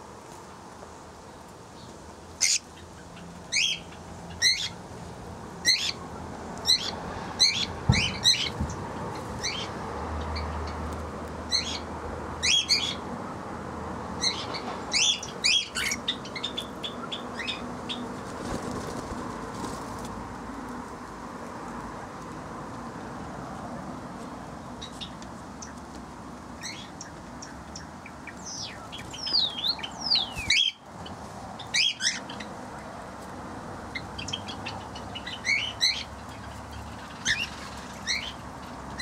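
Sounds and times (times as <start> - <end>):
parrots chirping: 2.4 - 2.8, 3.5 - 4.8, 5.6 - 6.0, 6.7 - 8.6, 12.4 - 13.0, 14.2 - 18.0, 26.6 - 30.8, 33.9 - 38.4.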